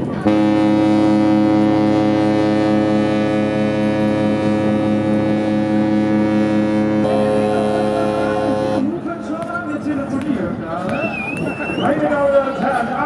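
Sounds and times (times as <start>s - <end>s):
ship's horn blast: 0.1s - 9.0s.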